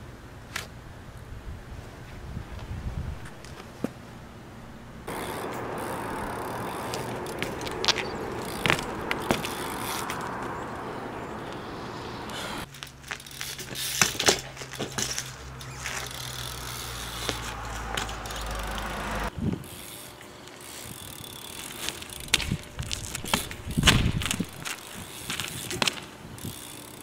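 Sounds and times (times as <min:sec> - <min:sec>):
bike tyres rolling on asphalt: 0:05.0 - 0:27.0
clicks and knocks from bike: 0:06.8 - 0:10.5, 0:12.7 - 0:16.4, 0:21.6 - 0:26.8.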